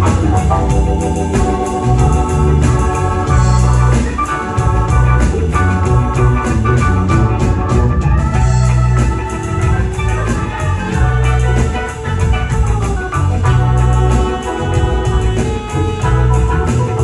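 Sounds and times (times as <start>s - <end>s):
electric bass guitar: 0.0s - 17.0s
organ keyboard chords: 0.0s - 17.0s
steady drum beat: 0.0s - 17.0s.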